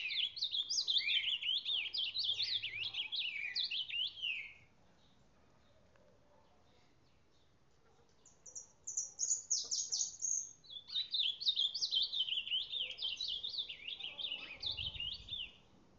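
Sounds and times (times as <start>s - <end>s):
bird warbling song: 0.0s - 4.7s, 8.2s - 15.7s.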